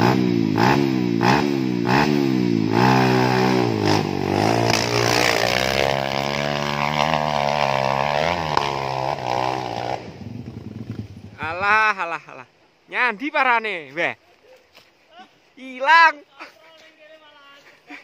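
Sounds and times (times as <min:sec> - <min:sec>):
dirt bike engine revving: 0:00.0 - 0:11.6.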